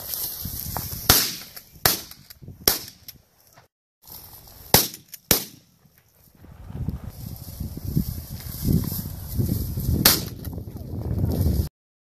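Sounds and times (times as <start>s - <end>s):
shotgun shots: 1.1s - 3.0s, 4.7s - 5.7s, 10.0s - 10.4s.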